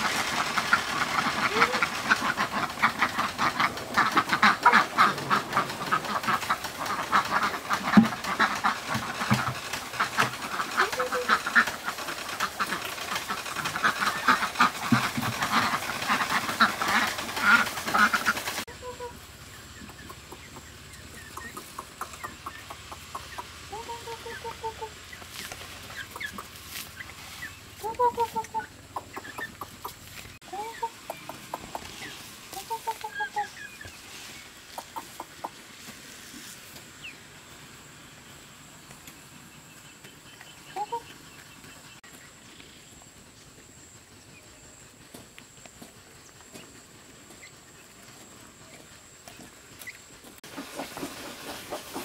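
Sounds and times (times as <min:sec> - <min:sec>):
duck bills clattering in trough: 0:00.0 - 0:18.6
duck quacking: 0:00.0 - 0:19.2
young chickens clucking: 0:00.0 - 0:52.0.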